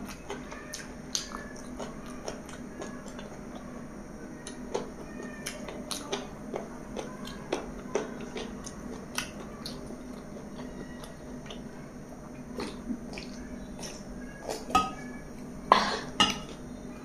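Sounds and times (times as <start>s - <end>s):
wet mouth eating sounds: 12.6s - 14.6s.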